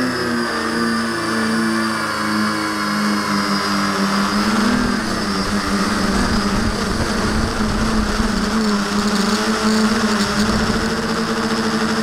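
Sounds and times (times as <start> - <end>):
drone motors humming and whining: 0.0 - 12.0
wind on microphone: 4.2 - 11.6.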